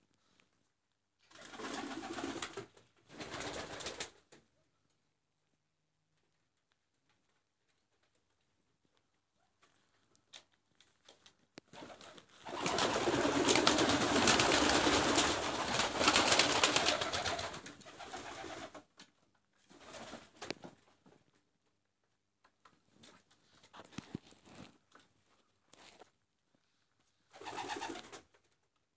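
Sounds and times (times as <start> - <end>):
wings flapping and rustling: 1.3 - 4.3, 11.0 - 18.8, 19.7 - 21.2, 27.3 - 28.5.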